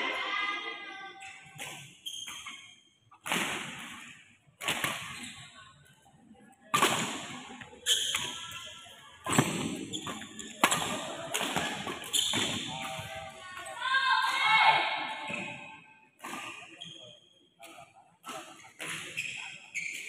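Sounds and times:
racket hitting shuttlecock: 0:03.2 - 0:05.2, 0:09.2 - 0:13.1.

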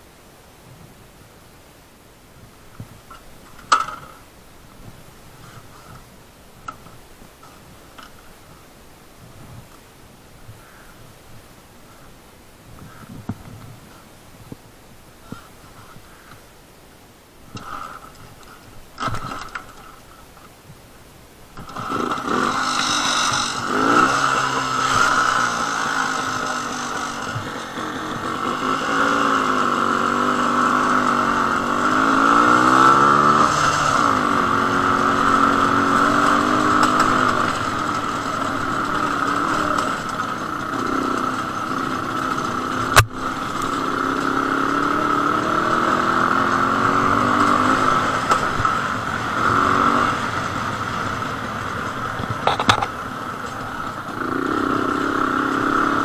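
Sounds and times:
two-stroke motorcycle engine running: 0:03.1 - 0:04.2, 0:21.6 - 0:56.0.

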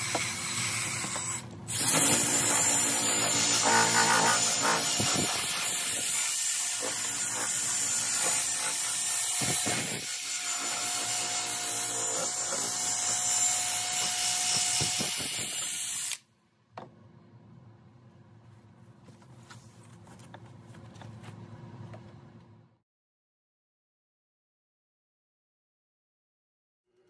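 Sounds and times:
drill spinning polishing pad: 0:00.0 - 0:16.2.

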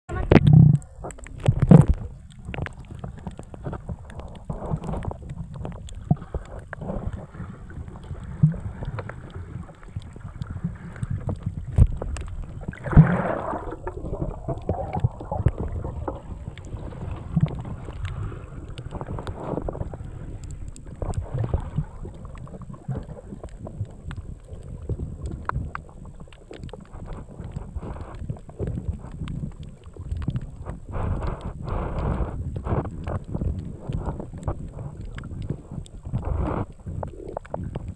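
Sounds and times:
water rush: 0:00.1 - 0:28.2
underwater clicks and knocks: 0:00.1 - 0:37.9
underwater rumble of moving water: 0:00.1 - 0:37.9.

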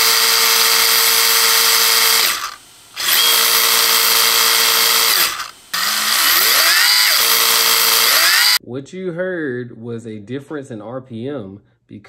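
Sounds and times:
electric motor whining: 0:00.0 - 0:08.6.

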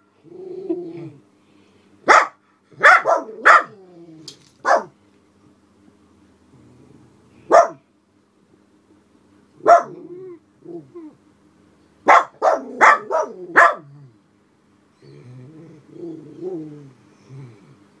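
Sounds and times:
small dog barking sharply: 0:02.1 - 0:03.7, 0:04.6 - 0:04.9, 0:07.5 - 0:07.8, 0:09.6 - 0:10.0, 0:12.1 - 0:13.8.

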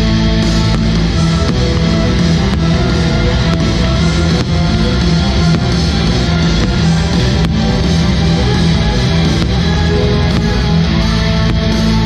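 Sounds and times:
rock music with guitar: 0:00.0 - 0:12.0.

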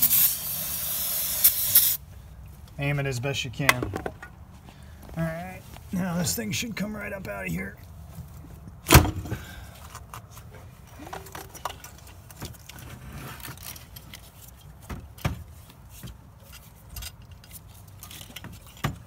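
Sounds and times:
metal pipe clinking and rattling: 0:16.4 - 0:19.0.

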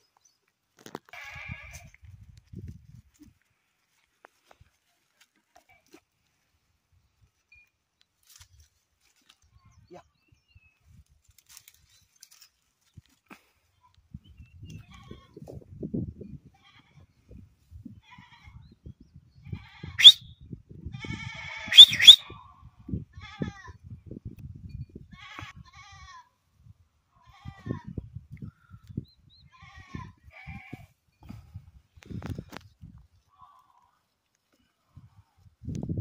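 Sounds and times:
goat bleating: 0:01.1 - 0:01.9.

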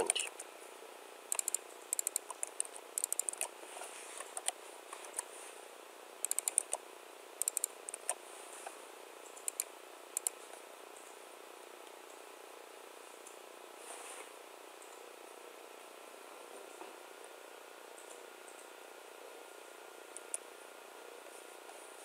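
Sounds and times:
keyboard typing: 0:01.3 - 0:03.5, 0:04.3 - 0:05.3, 0:06.2 - 0:06.8, 0:07.4 - 0:08.2, 0:09.4 - 0:10.4.

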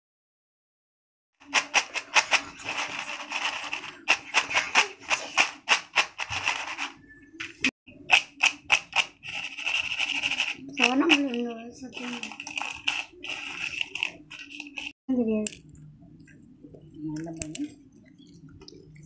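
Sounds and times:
chips rattling against bowl: 0:01.4 - 0:15.0.

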